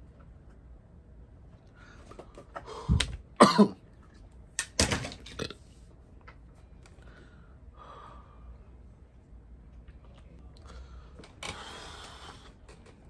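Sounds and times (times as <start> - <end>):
man coughing hard: 3.4 - 3.8.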